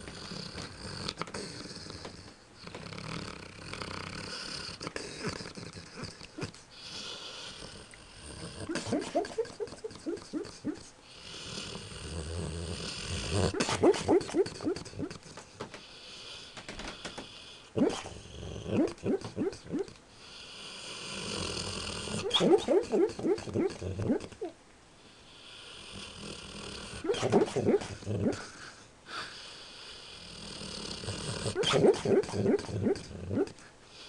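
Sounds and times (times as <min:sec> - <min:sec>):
dog snoring: 0:00.0 - 0:24.4, 0:25.4 - 0:28.7, 0:29.8 - 0:34.0
dog yips and whimpers: 0:08.7 - 0:10.9, 0:13.5 - 0:15.2, 0:17.8 - 0:18.1, 0:18.7 - 0:19.9, 0:22.1 - 0:24.6, 0:27.0 - 0:28.4, 0:31.5 - 0:33.6.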